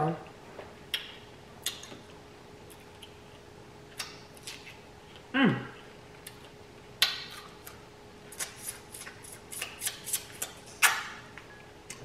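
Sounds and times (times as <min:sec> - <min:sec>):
chewing clicks and smacks: 0:00.9 - 0:05.3, 0:06.2 - 0:12.0
biting into strawberry: 0:06.2 - 0:11.2.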